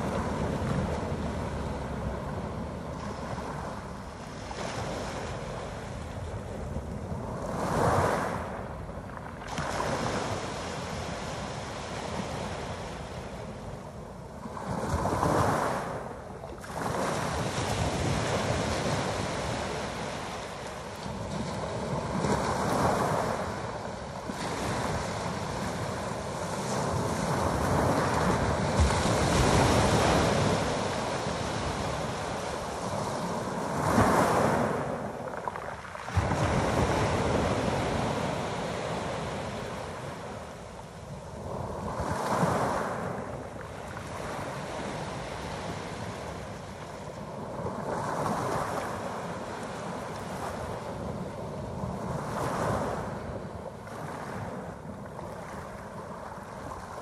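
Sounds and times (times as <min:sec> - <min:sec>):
waves breaking on pebble beach: 0:16.7 - 0:40.6.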